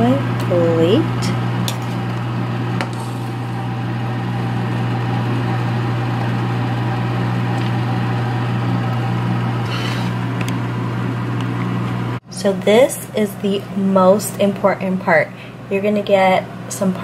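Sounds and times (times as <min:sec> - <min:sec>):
low mechanical hum with hiss: 0:00.0 - 0:17.0.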